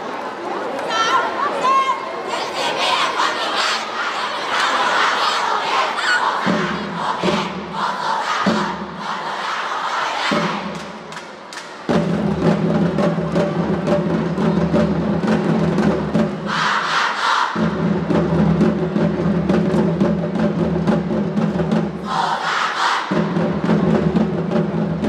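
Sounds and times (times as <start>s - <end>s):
crowd shout: 0.7s - 10.7s, 16.5s - 17.6s, 22.0s - 23.2s
drums beating fast rhythm: 6.3s - 9.5s, 10.2s - 10.9s, 11.9s - 17.0s, 17.6s - 25.0s.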